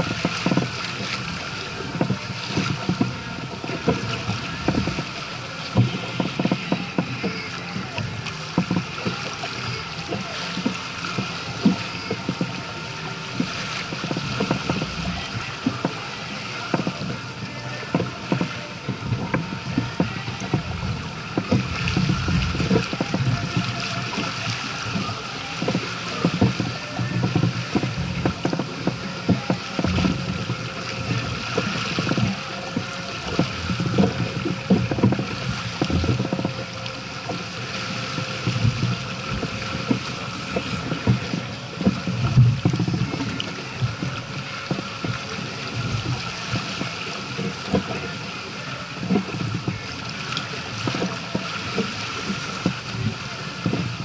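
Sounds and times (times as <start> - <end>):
water rushing along a hull: 0.0 - 54.0
wind thuds on microphone: 13.3 - 54.0.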